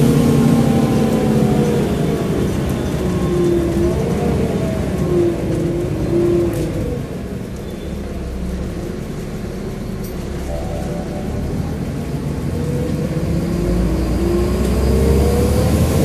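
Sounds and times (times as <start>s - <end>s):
bus engine running: 0.0s - 16.0s.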